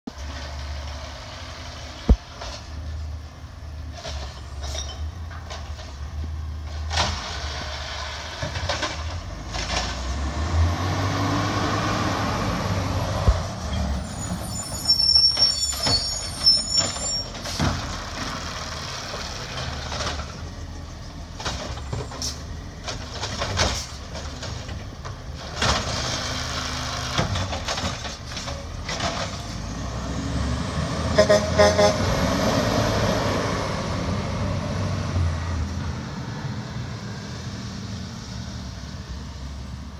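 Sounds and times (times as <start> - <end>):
garbage truck engine: 0.1 - 39.9
hydraulic arm clanks and squeals: 4.0 - 6.0, 13.6 - 18.1, 21.6 - 24.9.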